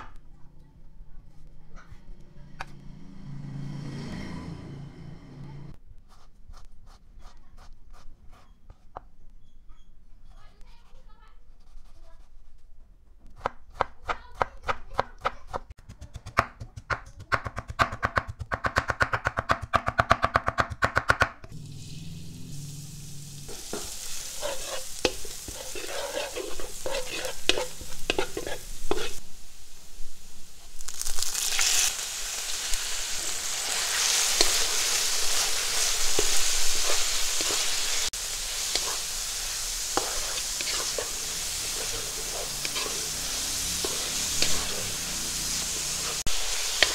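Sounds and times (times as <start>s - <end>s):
beef frying with loud sizzle: 21.5s - 46.9s
garlic sizzling softly in oil: 21.5s - 46.9s
spatula scraping pan: 23.5s - 29.2s, 33.7s - 46.9s.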